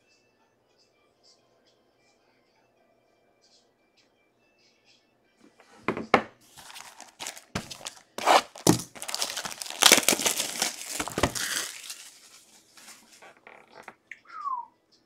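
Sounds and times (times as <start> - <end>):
shrink-wrap tearing and crinkling: 6.5 - 13.8
box knocks: 7.5 - 9.1.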